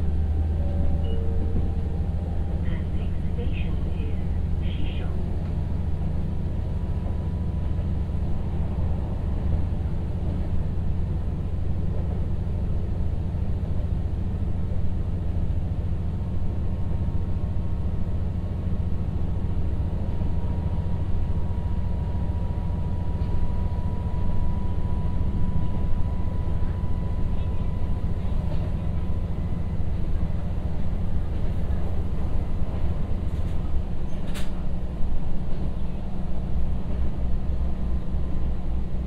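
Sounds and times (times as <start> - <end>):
low engine drone: 0.0 - 39.0
wheels rumbling on track: 0.0 - 39.0
crossing warning signal tone: 0.2 - 3.3.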